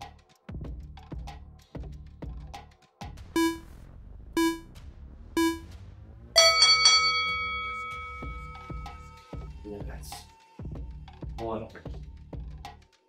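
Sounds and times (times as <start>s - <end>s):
electronic background music: 3.2s - 13.0s
short electronic beeps: 3.4s - 3.7s, 4.4s - 4.7s, 5.4s - 5.7s, 6.4s - 6.7s
ringing chime: 6.4s - 9.4s.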